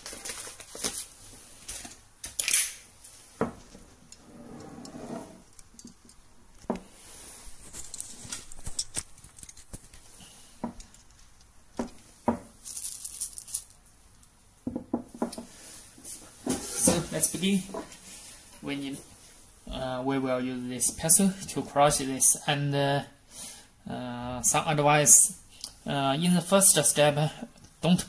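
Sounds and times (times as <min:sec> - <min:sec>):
paper bag rustling: 0:00.0 - 0:02.0, 0:12.6 - 0:13.8.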